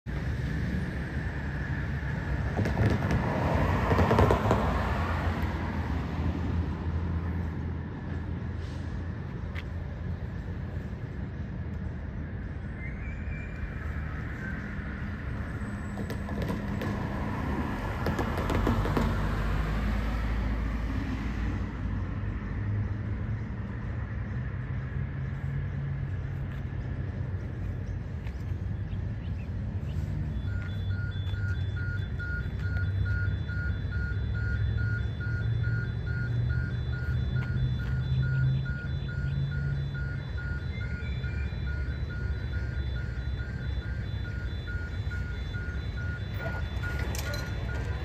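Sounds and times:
distant diesel locomotives droning: 0:29.6 - 0:48.0.

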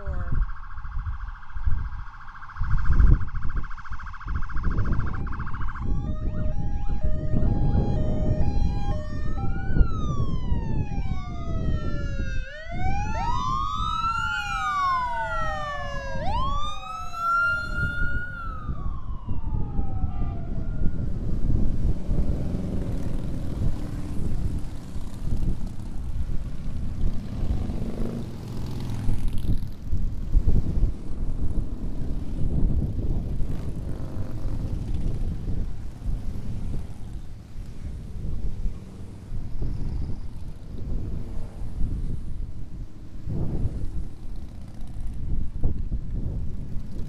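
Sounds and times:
police sirens wailing: 0:00.0 - 0:28.9
motorcycle engines rumbling: 0:00.0 - 0:47.0.

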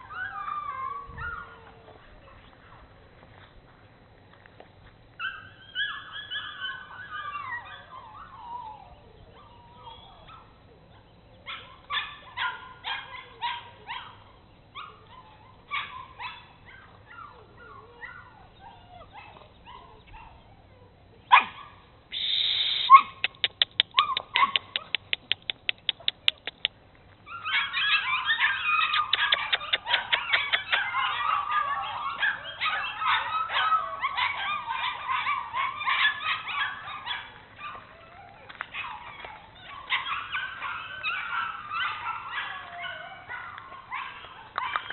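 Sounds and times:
puppies whimpering and yipping: 0:00.0 - 0:02.8, 0:05.2 - 0:21.8, 0:27.3 - 0:44.9
fast run of clicks: 0:23.2 - 0:26.8.

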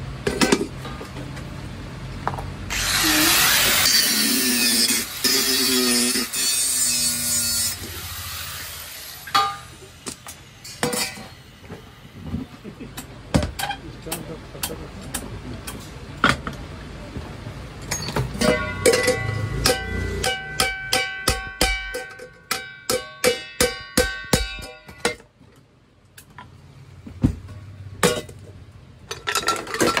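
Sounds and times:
angle grinder grinding metal: 0:02.7 - 0:11.6
sharp metal clanks: 0:09.2 - 0:11.4, 0:17.8 - 0:25.3
hammer blows on ringing saucepan: 0:18.4 - 0:25.2.

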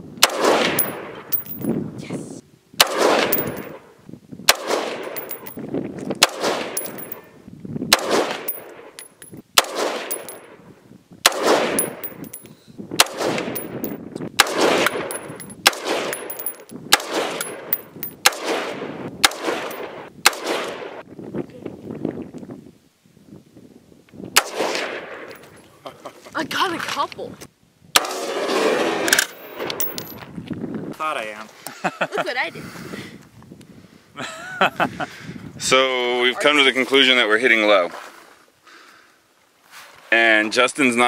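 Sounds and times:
rifle shots with echo: 0:00.2 - 0:01.7, 0:02.8 - 0:03.8, 0:04.5 - 0:05.5, 0:06.2 - 0:07.2, 0:07.9 - 0:09.0, 0:09.6 - 0:10.6, 0:11.2 - 0:12.1, 0:13.0 - 0:21.0, 0:24.4 - 0:25.4.

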